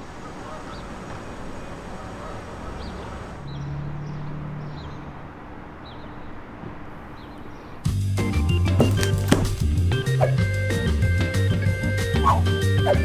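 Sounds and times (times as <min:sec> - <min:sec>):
high bird chirps: 0:00.0 - 0:07.8
distant traffic rumble: 0:00.0 - 0:13.0
low engine hum: 0:00.0 - 0:13.0.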